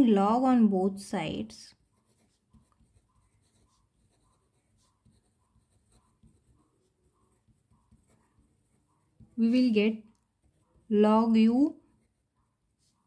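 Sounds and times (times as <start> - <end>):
pen writing on paper: 1.7 - 10.9.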